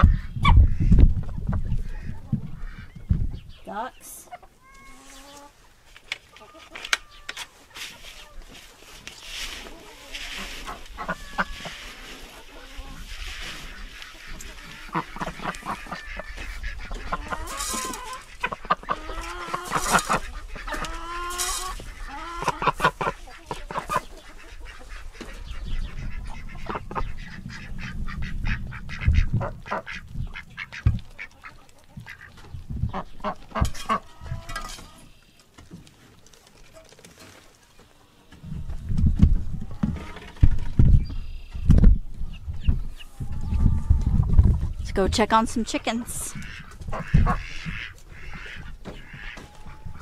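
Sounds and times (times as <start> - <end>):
ducks quacking: 0.0 - 5.7, 6.3 - 35.3, 42.4 - 50.0.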